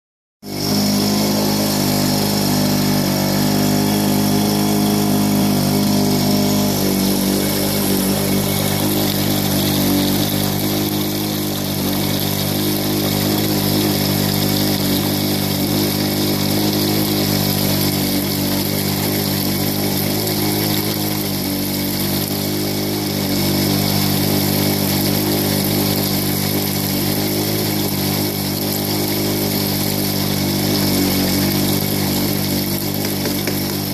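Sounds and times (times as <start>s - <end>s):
motor droning: 0.4s - 33.9s
water rushing down sluice box: 0.4s - 33.9s.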